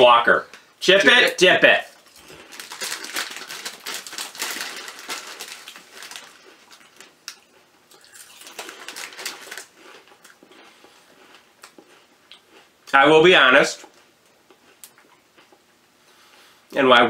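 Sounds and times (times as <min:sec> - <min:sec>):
crisps crunching: 0:01.0 - 0:13.0
foil crisp packet crinkling: 0:01.1 - 0:10.4.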